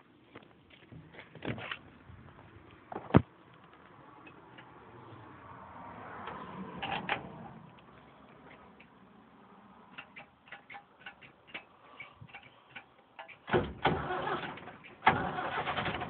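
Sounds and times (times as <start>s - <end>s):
tractor engine starting: 13.3s - 16.0s.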